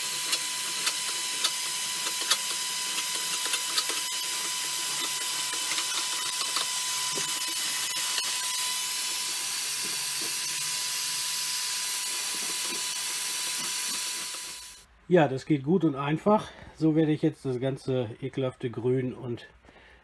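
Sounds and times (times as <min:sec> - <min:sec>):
heat gun hiss and whine: 0:00.0 - 0:14.9.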